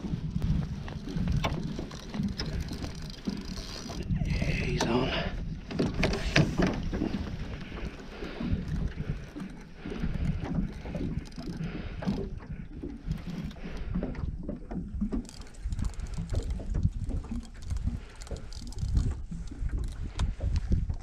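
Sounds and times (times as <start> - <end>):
wind buffeting microphone: 0.0 - 21.0
man breathing heavily: 7.0 - 14.3.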